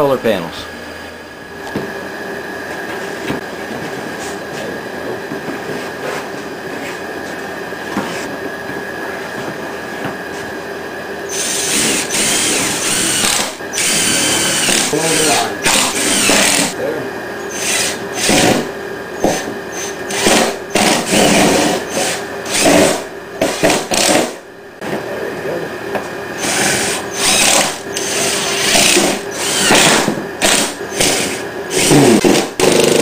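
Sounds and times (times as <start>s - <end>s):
cordless drill motor whine: 11.3s - 16.8s, 17.4s - 18.6s, 26.4s - 32.3s.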